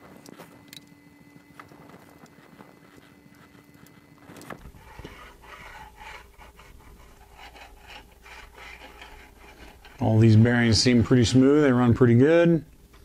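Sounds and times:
bearings rubbing along guide rods: 4.6s - 11.6s.

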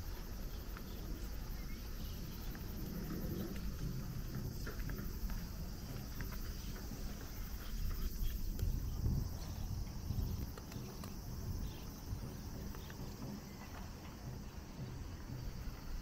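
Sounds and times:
insect chorus trilling: 0.0s - 16.0s
low uneven rumble: 0.1s - 16.0s
faint ticks: 9.4s - 14.2s.

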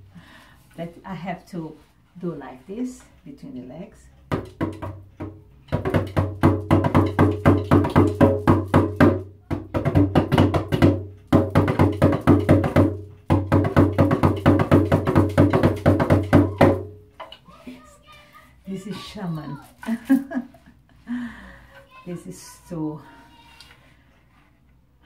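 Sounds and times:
frame drum beaten by hand: 4.3s - 17.2s.

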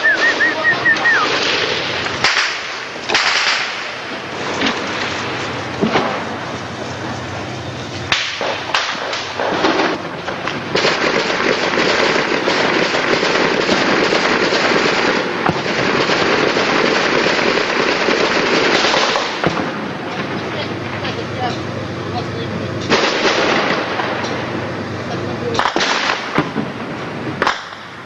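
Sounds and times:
continuous crackle of shooting: 0.0s - 28.0s
gunfire cracks: 0.1s - 5.2s, 8.1s - 19.8s, 22.9s - 24.4s, 25.5s - 26.8s, 27.4s - 28.0s.

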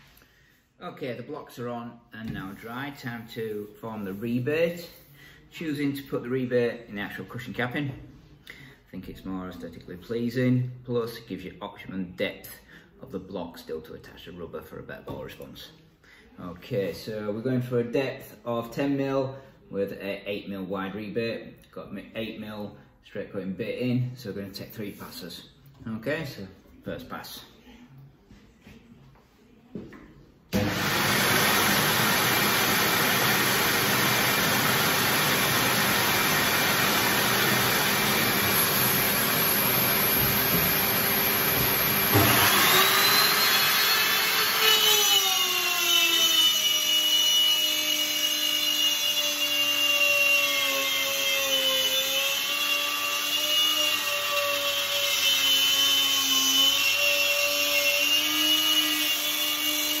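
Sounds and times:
router bit cutting wood: 30.5s - 60.0s
router whining: 30.5s - 60.0s
steady motor noise: 30.6s - 49.2s.

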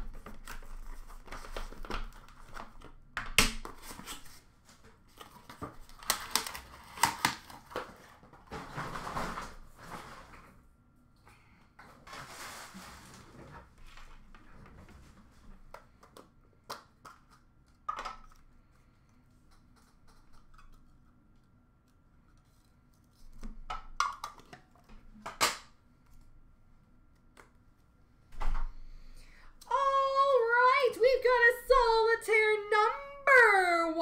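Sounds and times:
cardboard and wrappers rustling: 0.0s - 3.0s, 3.6s - 10.4s, 12.0s - 16.2s.

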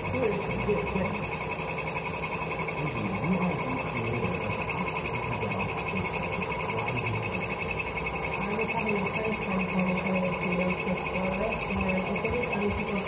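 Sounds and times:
shop machinery humming and whining: 0.0s - 13.0s.

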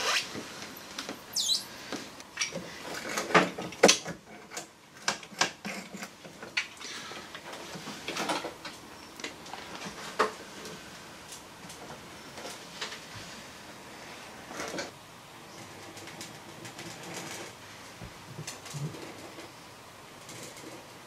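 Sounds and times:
rubber squeaking and scraping on glass: 0.0s - 0.4s, 1.3s - 3.3s.

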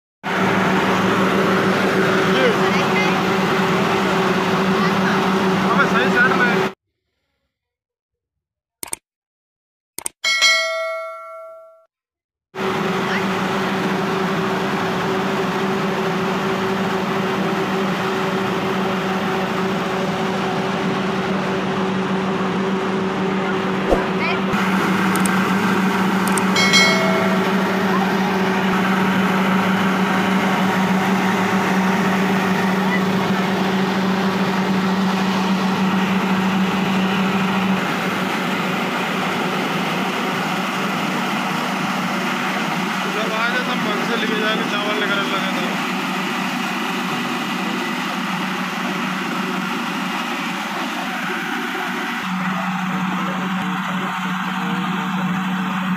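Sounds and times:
rice mill mechanical drone: 0.2s - 7.2s, 12.6s - 55.9s.

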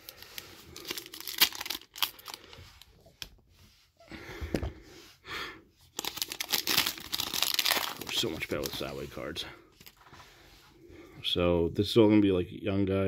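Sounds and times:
wrapper crinkling: 0.0s - 2.5s, 5.9s - 9.1s
wrapper ripping: 0.0s - 2.5s, 6.0s - 8.9s.

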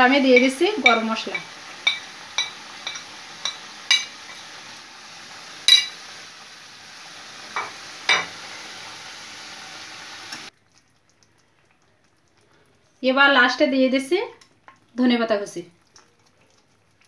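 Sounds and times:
curry sizzling in a pan: 0.0s - 17.0s
metal spoon clinking on pan: 0.3s - 4.4s, 5.7s - 6.0s.

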